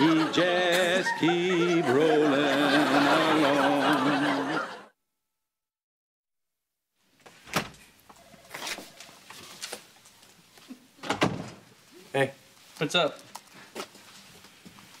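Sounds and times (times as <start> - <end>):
man singing: 0.0 - 4.4
wooden door opening with clunk: 11.0 - 11.6.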